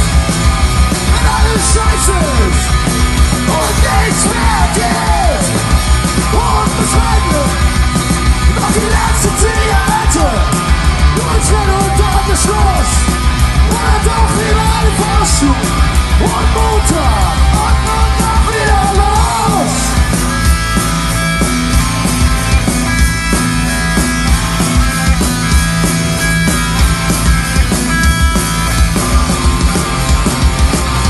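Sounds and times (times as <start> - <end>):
punk rock band playing live: 0.0 - 31.0
singer shouting and singing: 1.0 - 2.7, 3.4 - 7.8, 8.4 - 20.2.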